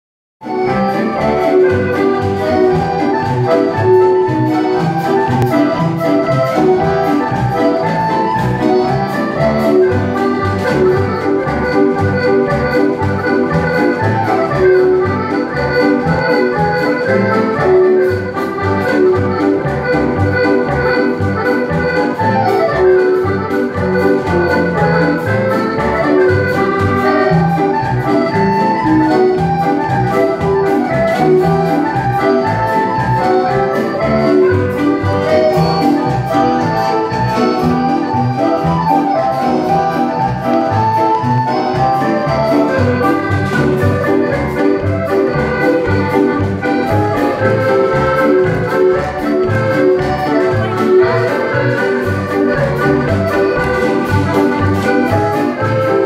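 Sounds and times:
accordions playing dance tune: 0.4 - 56.0.

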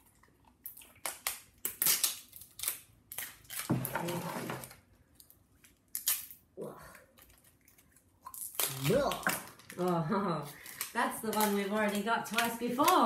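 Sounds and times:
plastic wrappers crinkling: 7.2 - 13.0.

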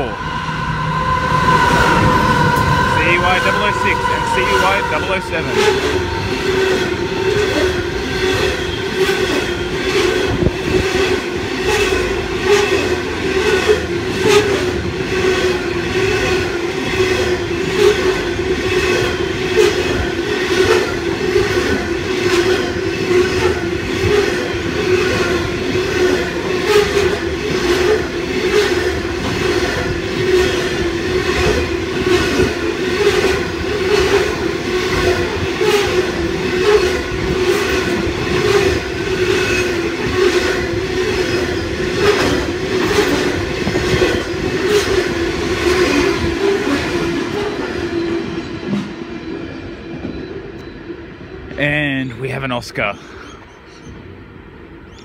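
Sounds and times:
constant whine: 0.0 - 14.1
train wheels rumbling on rail: 0.0 - 55.0.

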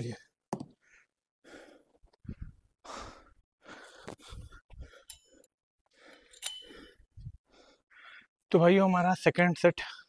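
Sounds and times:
man breathing heavily: 0.8 - 8.4
metallic clink of weight pin: 6.3 - 6.9.

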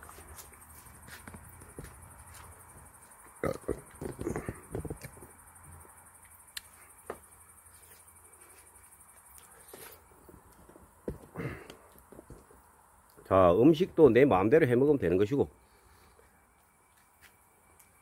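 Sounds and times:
crickets chirping: 0.0 - 18.0
knocks and thumps: 3.7 - 5.3, 10.3 - 12.6.

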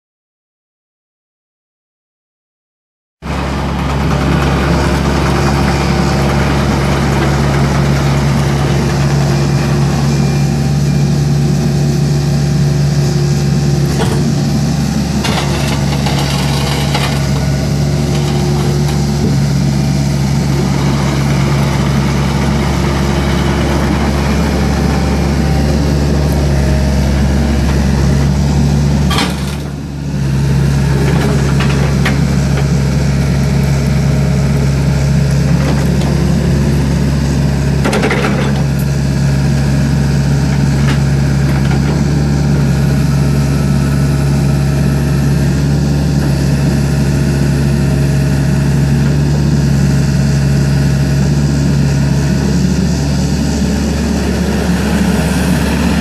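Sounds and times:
excavator diesel engine running: 3.2 - 56.0.

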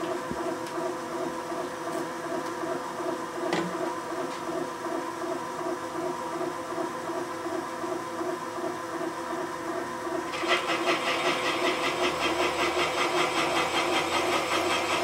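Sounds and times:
valve seat cutter whirring: 10.2 - 15.0.

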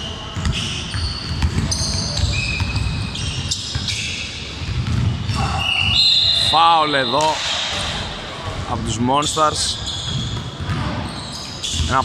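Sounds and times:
sneakers squeaking: 0.0 - 12.0
basketball dribbled on hardwood floor: 0.4 - 3.0, 4.7 - 5.1.

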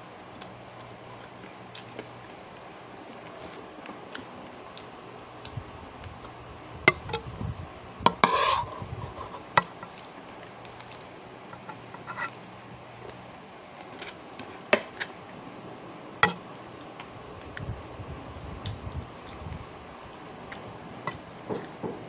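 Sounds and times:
electric fan hum: 0.0 - 22.0.

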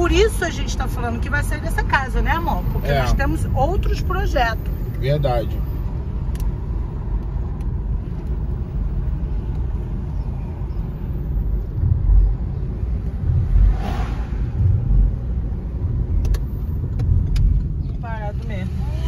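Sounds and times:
car engine and tyre rumble: 0.0 - 19.0
heavy low thumps: 11.4 - 17.8
short rush of noise: 13.4 - 15.2.

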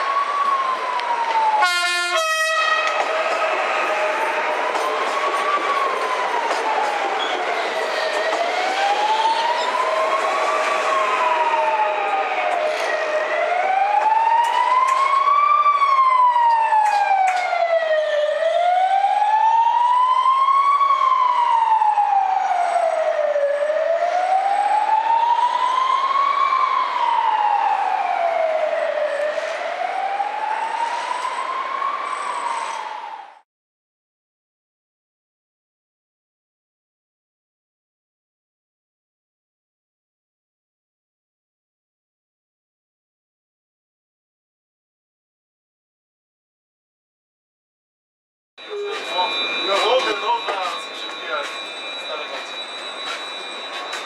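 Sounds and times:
wailing siren: 0.0 - 33.4, 48.6 - 54.0.

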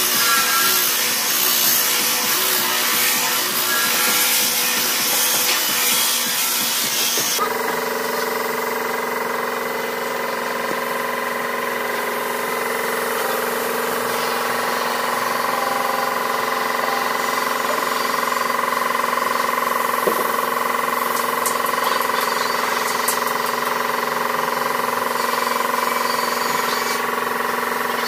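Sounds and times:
air compressor hum: 0.0 - 28.0
disc sander on wood: 0.0 - 28.0
air spray gun hissing: 9.6 - 21.8.

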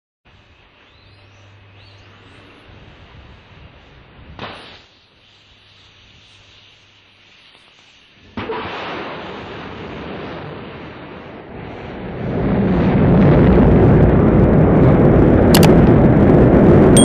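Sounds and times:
loud hiss: 1.9 - 9.2
rocket launch rumble: 8.4 - 17.0.

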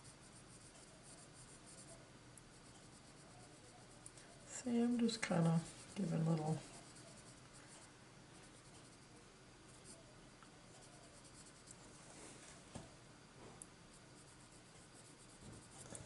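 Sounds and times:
colored pencil scratching on paper: 0.0 - 9.1, 9.7 - 10.1, 10.7 - 11.9, 13.9 - 16.0
small ticks: 8.5 - 9.1.

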